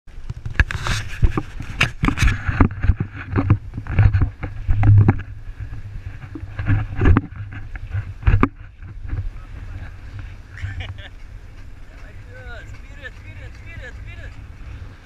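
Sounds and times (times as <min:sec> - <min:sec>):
wind buffeting microphone: 0:00.1 - 0:15.0
camera knocks and rattles: 0:00.2 - 0:09.3.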